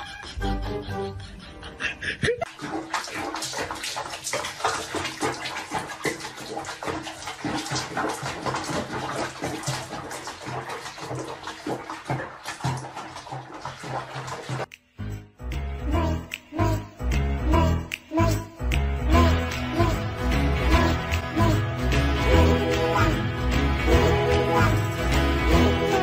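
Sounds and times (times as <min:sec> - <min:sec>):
bath water splashing: 0:02.4 - 0:14.8, 0:19.2 - 0:26.0.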